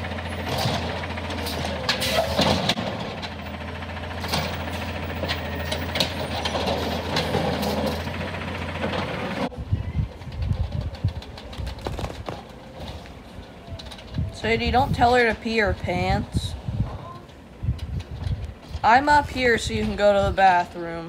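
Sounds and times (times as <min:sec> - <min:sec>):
garbage truck engine idling: 0:00.0 - 0:11.6.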